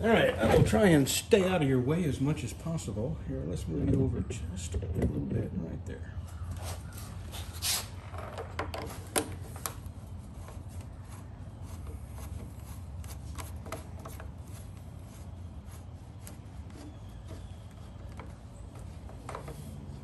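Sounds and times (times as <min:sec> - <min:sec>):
steady low hum: 0:00.0 - 0:20.0
faint rustling and knocks: 0:06.3 - 0:20.0.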